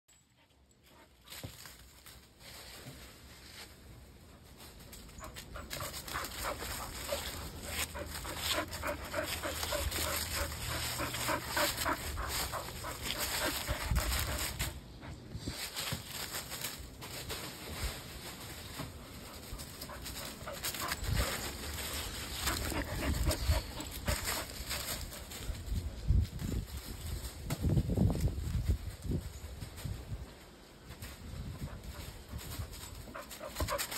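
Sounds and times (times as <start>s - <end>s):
dog panting: 5.2s - 15.2s, 19.3s - 25.3s, 31.6s - 33.9s.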